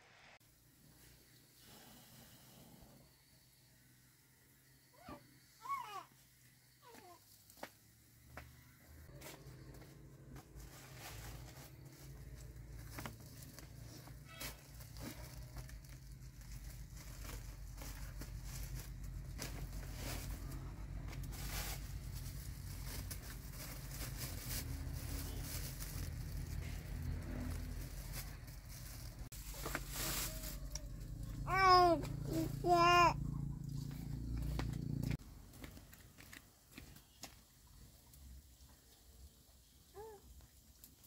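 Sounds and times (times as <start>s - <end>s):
plastic bags crinkling: 11.0s - 20.4s, 21.2s - 30.8s.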